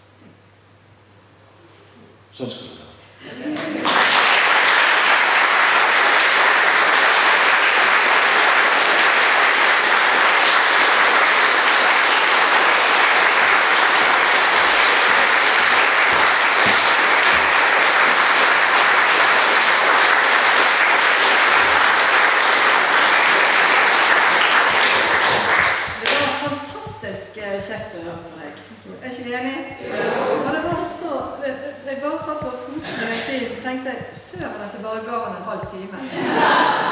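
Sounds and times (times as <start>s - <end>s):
audience applauding: 3.4s - 26.6s.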